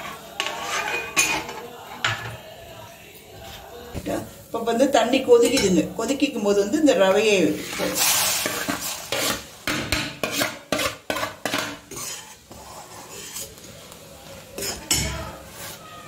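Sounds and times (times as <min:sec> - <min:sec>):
spoon knocking and scraping a pan: 0:00.0 - 0:02.4, 0:07.6 - 0:13.7, 0:14.6 - 0:15.8.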